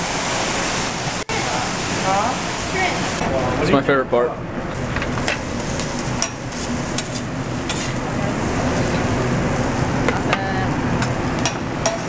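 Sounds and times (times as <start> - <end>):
food sizzling on a griddle: 0.0 - 3.2
metal utensils clinking: 11.0 - 12.0.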